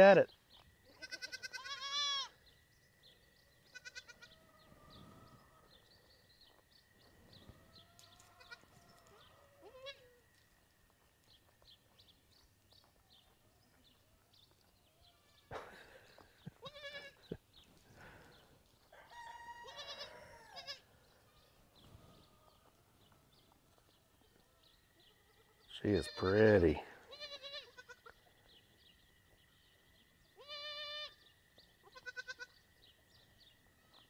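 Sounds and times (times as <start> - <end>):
goats bleating: 0.9 - 2.3, 3.7 - 4.2, 16.6 - 17.4, 19.6 - 20.8, 27.0 - 28.1, 30.4 - 31.1, 32.0 - 32.5.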